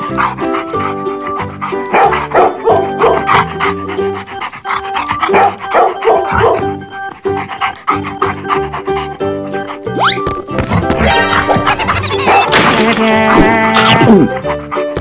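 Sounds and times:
background music: 0.0 - 15.0
dog barking: 1.9 - 3.8, 5.2 - 6.8, 11.2 - 12.5.

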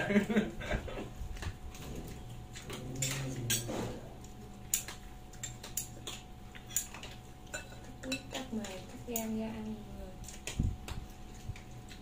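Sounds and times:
cutlery clinking on dishes: 2.6 - 4.0, 4.7 - 9.3.

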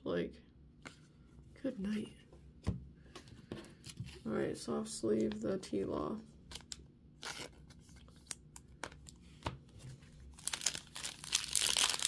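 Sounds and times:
foil wrapper crinkling and tearing: 10.3 - 12.0.

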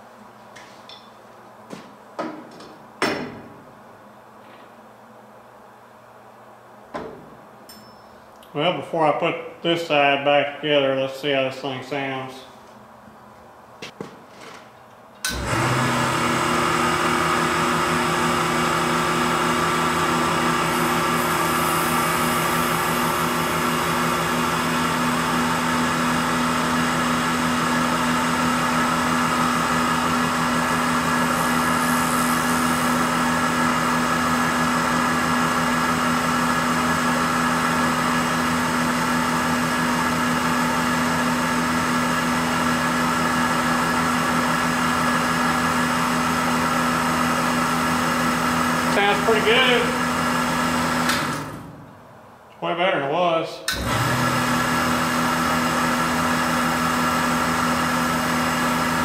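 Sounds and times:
valve grinder motor humming: 15.3 - 51.6.

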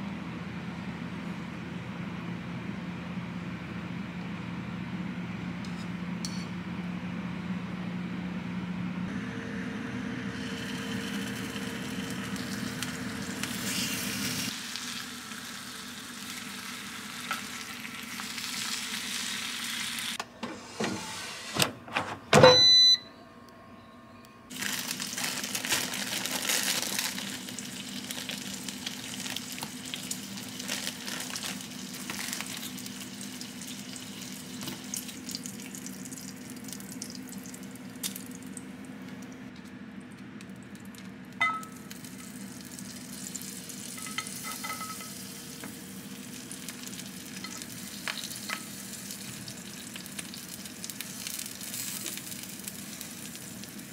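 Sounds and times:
appliance humming: 0.0 - 53.9
frying hiss: 10.3 - 20.2, 24.5 - 38.4, 41.8 - 53.9
short electronic beep: 22.4 - 23.2.

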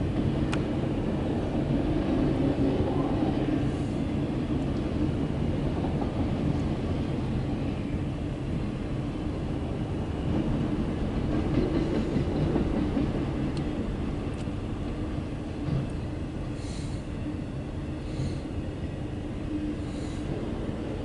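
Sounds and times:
steel wheels rumbling on rail: 0.0 - 21.0
rail joint clatter: 10.3 - 15.0, 15.6 - 16.1.

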